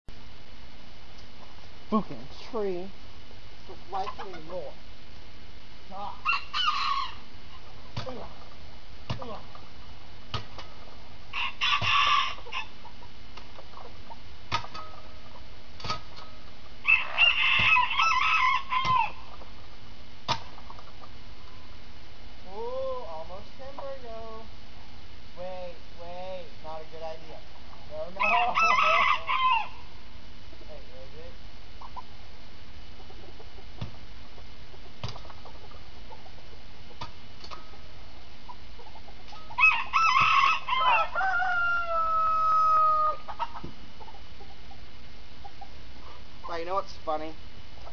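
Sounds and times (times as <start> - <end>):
background hiss: 0.1 - 47.9
stick knocking against tree: 10.3 - 10.7, 20.2 - 20.5, 35.0 - 35.3.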